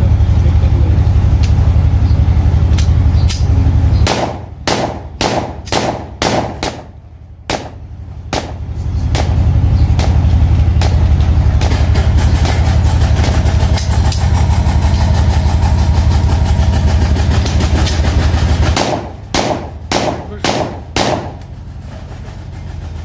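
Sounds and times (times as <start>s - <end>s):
steady low hum: 0.0s - 23.0s
pistol shots: 4.0s - 9.4s, 18.8s - 21.4s.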